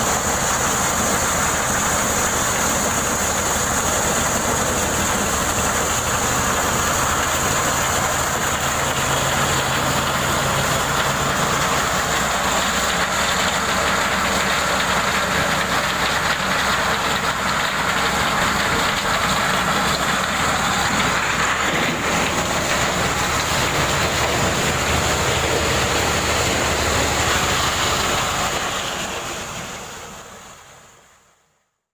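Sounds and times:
corn sheller mechanical din: 0.0s - 30.7s
engine hum: 0.0s - 31.1s
steady high whine: 18.0s - 31.2s.

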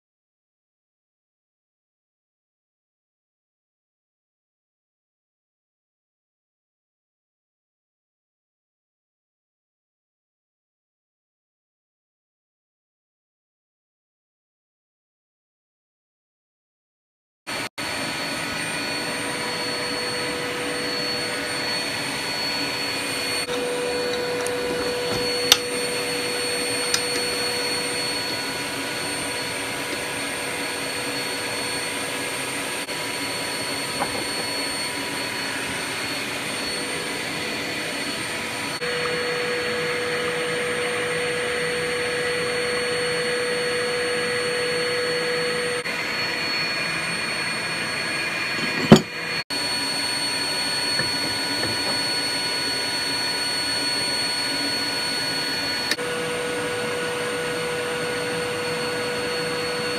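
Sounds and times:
dust extractor running: 17.5s - 59.9s.

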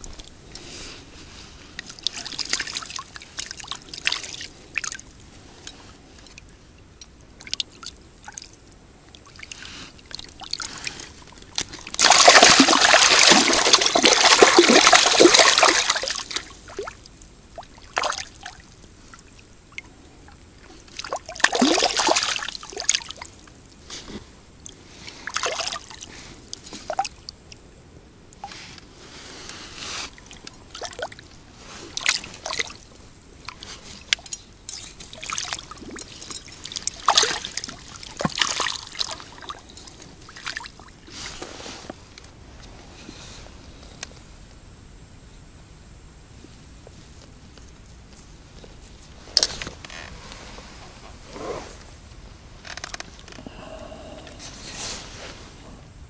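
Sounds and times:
water splashing: 9.3s - 17.0s, 20.9s - 23.3s, 30.2s - 39.7s.

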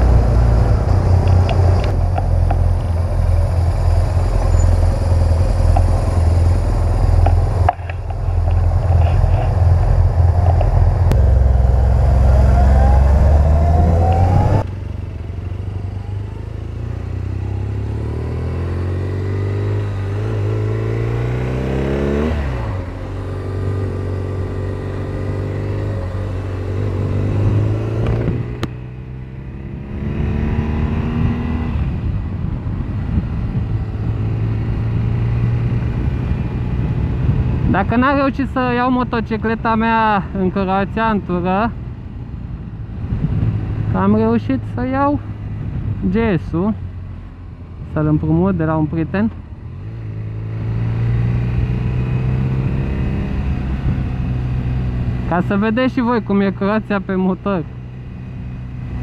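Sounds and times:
wind noise: 0.0s - 16.5s, 29.6s - 48.0s, 49.4s - 55.4s
motorcycle engine revving: 0.0s - 32.0s, 42.7s - 55.9s.

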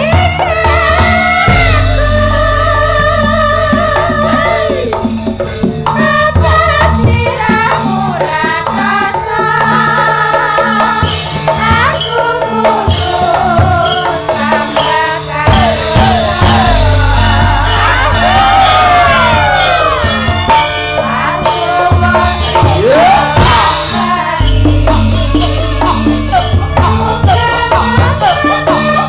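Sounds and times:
gamelan music: 0.0s - 29.0s
hand drum: 0.0s - 29.0s
rattling percussion: 0.0s - 29.0s
women singing through microphones: 0.0s - 29.0s.

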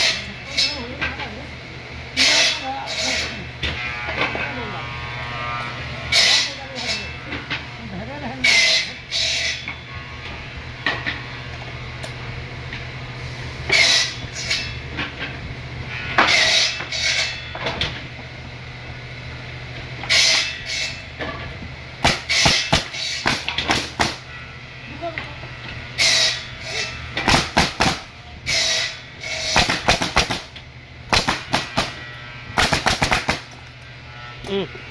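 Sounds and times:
steady low hum: 0.0s - 34.9s
nail gun firing: 22.0s - 24.2s, 27.2s - 28.1s, 29.6s - 30.5s, 31.1s - 32.0s, 32.6s - 33.6s.

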